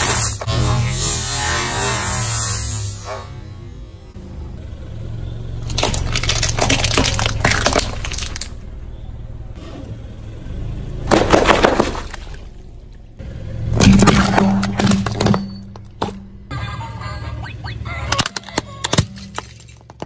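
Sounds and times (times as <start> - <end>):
vehicle engine low hum: 0.0 - 20.0
objects crunching under tyres: 5.4 - 16.5, 18.1 - 20.0.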